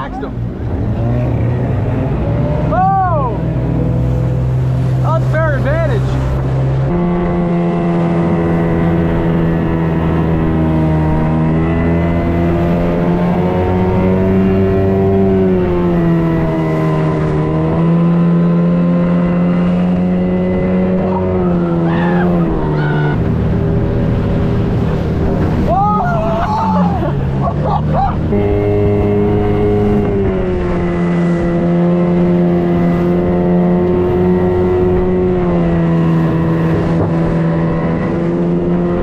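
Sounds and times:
outboard motor droning: 0.0s - 39.0s.

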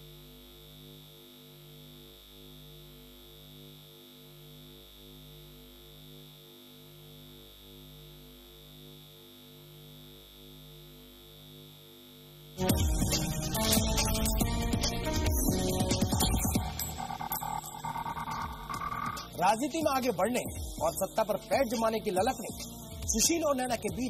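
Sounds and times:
low synthesizer drone: 12.6s - 23.8s
thin steady high tone: 12.6s - 24.0s.

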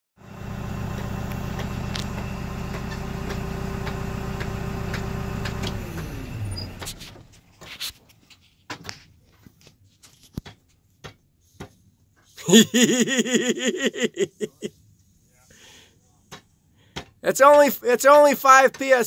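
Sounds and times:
diesel engine idling and shutting off: 0.2s - 7.4s.

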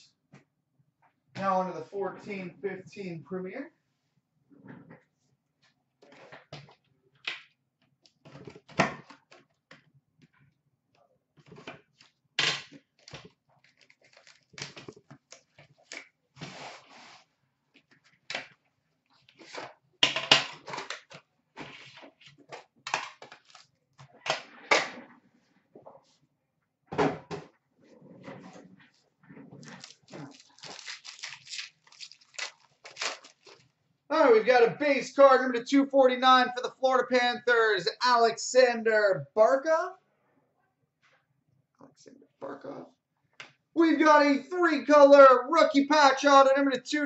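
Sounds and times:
packaging crinkling and rustling: 13.0s - 16.1s, 22.3s - 23.8s, 29.6s - 33.7s.

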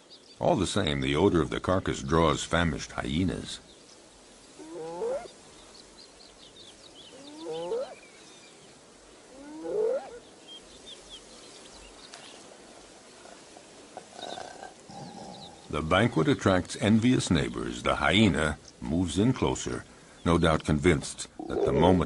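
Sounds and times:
faint bird chirps: 3.6s - 15.7s.

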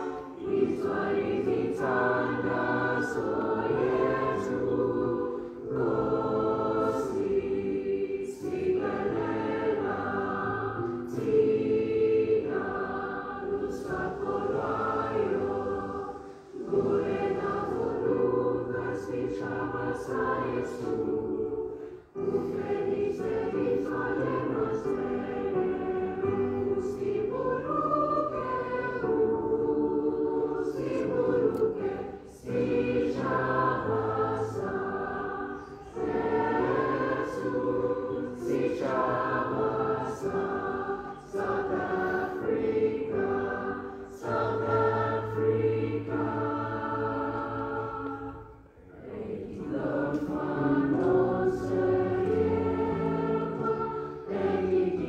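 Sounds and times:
choir singing: 0.0s - 55.0s.

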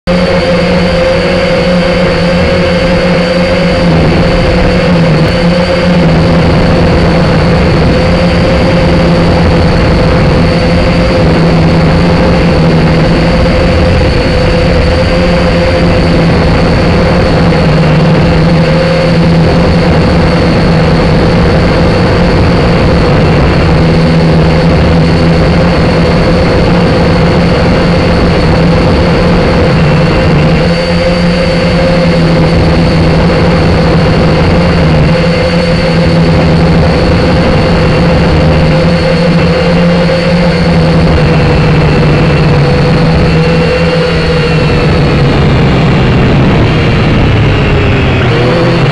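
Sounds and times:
drone propellers buzzing whine: 0.0s - 48.9s.

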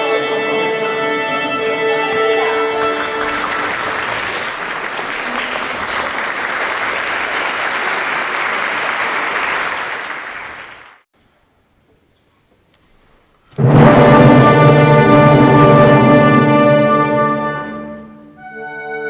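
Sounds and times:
audience applauding: 2.1s - 11.0s.

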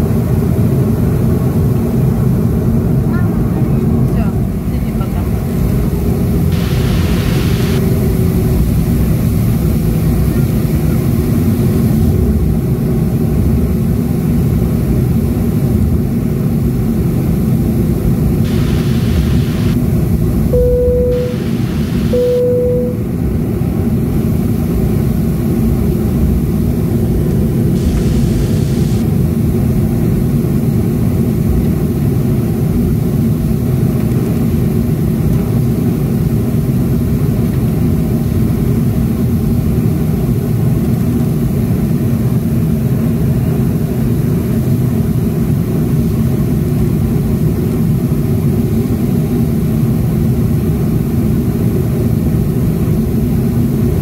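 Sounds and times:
jet engines rumbling: 1.7s - 30.8s
short steady tones: 6.6s - 7.8s, 20.6s - 23.1s.

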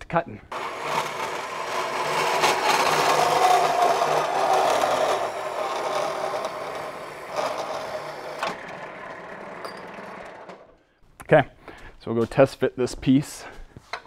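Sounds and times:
power tool cutting steel: 0.5s - 10.6s
motor hum: 0.5s - 10.7s.

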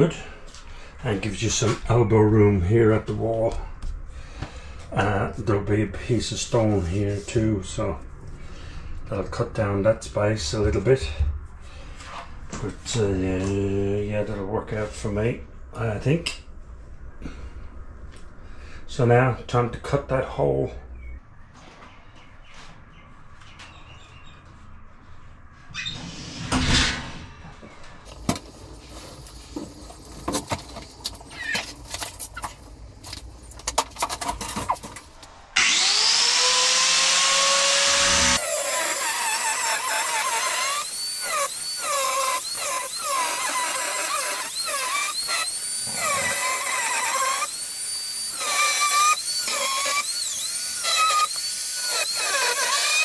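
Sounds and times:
angle grinder cutting stone: 35.6s - 53.0s.

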